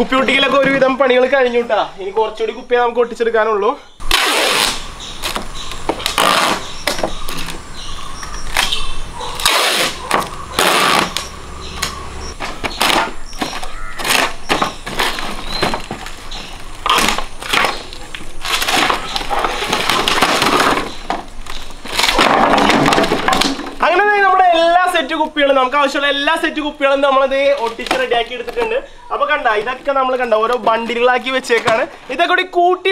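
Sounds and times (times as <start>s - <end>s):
plastic bottles clattering: 12.4s - 24.0s, 27.3s - 28.9s, 29.5s - 32.2s.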